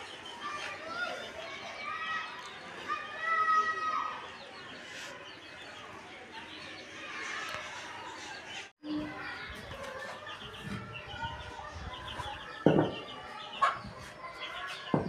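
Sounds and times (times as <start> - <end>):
small birds chirping: 0.0 - 15.0
chickens clucking: 7.4 - 15.0.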